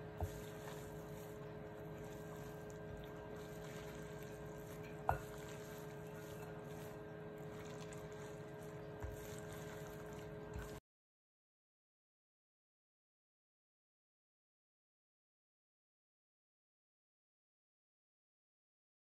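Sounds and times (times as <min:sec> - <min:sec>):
steady hum: 0:00.0 - 0:10.8
wet rustle of tossed noodles: 0:00.0 - 0:10.8.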